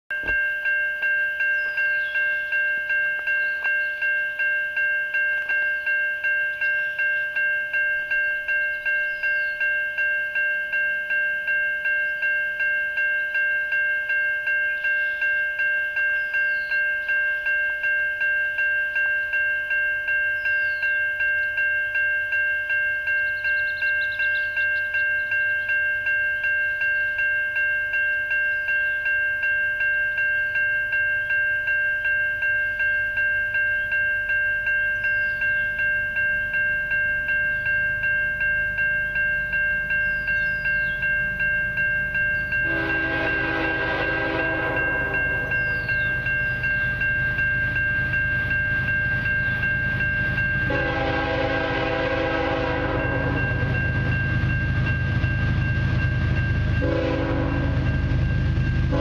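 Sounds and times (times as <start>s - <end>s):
freight train rumble: 0.1s - 59.0s
railway crossing bell ringing: 0.1s - 59.0s
faint birdsong: 1.4s - 4.4s, 5.3s - 7.5s, 8.4s - 9.8s, 14.6s - 17.5s, 20.1s - 21.7s, 23.1s - 27.3s, 28.4s - 29.2s, 34.8s - 35.9s, 39.0s - 42.9s, 44.4s - 50.0s.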